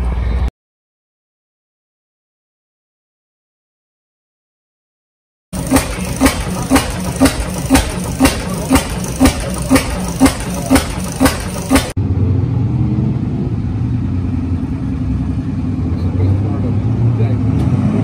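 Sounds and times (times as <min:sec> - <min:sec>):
two-stroke engine firing: 0:05.6 - 0:12.0.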